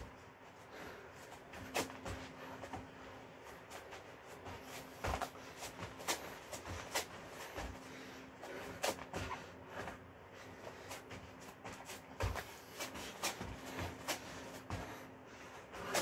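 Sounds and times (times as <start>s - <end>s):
feet and hands thumping on mat: 4.4s - 7.8s, 11.1s - 15.0s.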